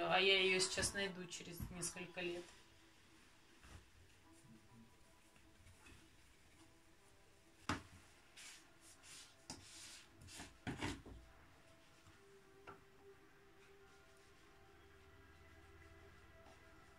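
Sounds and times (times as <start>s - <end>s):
cloth towels rustling: 2.0s - 11.0s.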